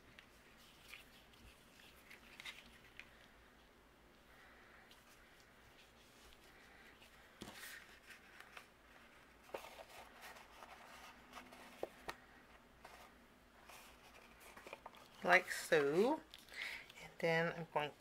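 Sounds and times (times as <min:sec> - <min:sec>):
twine and card rustling: 0:00.1 - 0:03.4, 0:04.8 - 0:17.0.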